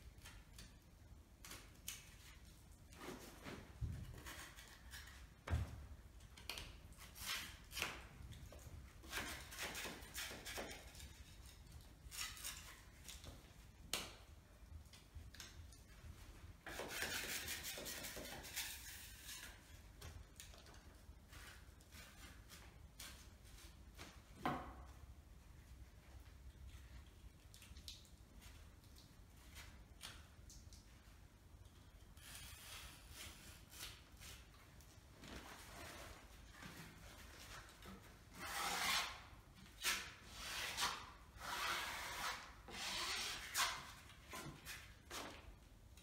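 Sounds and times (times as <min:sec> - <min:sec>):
putty knife scraping: 0:09.0 - 0:13.3, 0:16.6 - 0:19.7.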